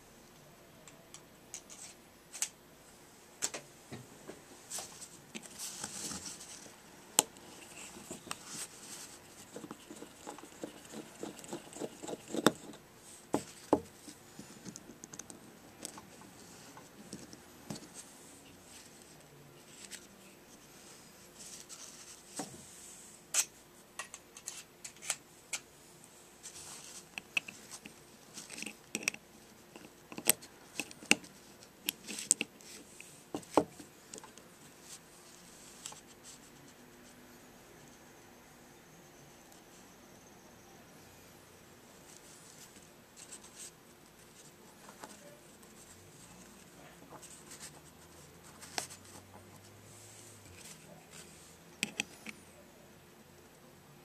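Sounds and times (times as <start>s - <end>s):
screwdriver clicks and scraping: 9.5s - 12.8s, 27.1s - 29.2s, 29.8s - 31.3s, 51.8s - 52.4s.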